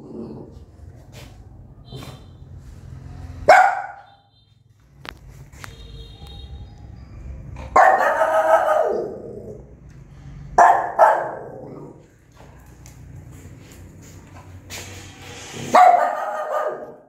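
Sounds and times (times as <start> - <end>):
dog barking: 3.4 - 4.1, 7.7 - 9.3, 10.6 - 11.8, 15.7 - 17.0.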